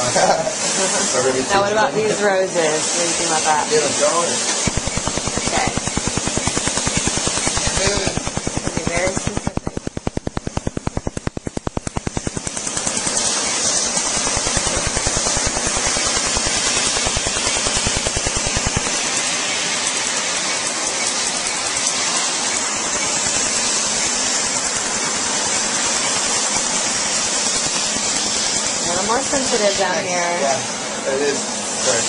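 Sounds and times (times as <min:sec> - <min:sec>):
cooling air hiss: 0:00.0 - 0:32.0
laser handpiece rapid clicking: 0:04.6 - 0:29.4.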